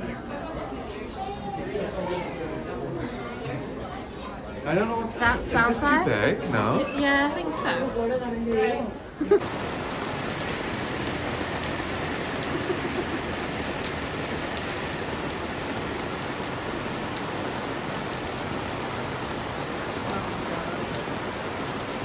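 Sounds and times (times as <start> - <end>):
heavy rain on pavement: 9.2 - 22.0.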